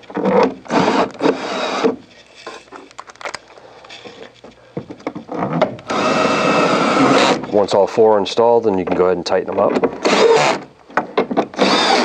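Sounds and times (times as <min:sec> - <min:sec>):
cordless drill spinning: 0:00.7 - 0:01.9, 0:05.9 - 0:07.5, 0:10.0 - 0:10.7, 0:11.5 - 0:12.0.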